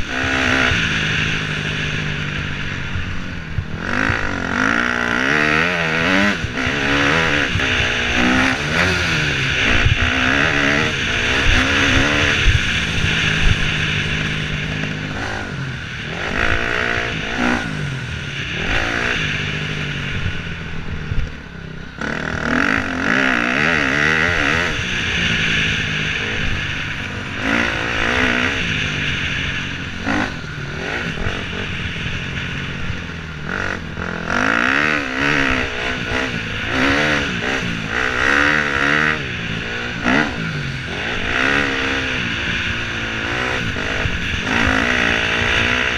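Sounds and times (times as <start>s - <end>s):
dirt bike engine revving: 0.0s - 45.9s
wind on microphone: 0.0s - 45.9s.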